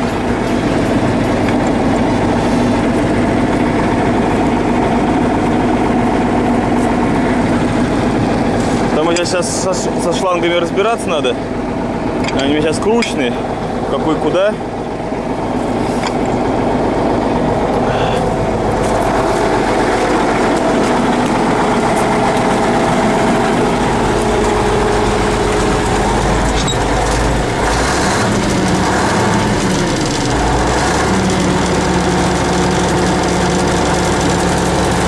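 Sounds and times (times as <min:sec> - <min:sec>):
diesel tractor engine idling: 0:00.0 - 0:35.0.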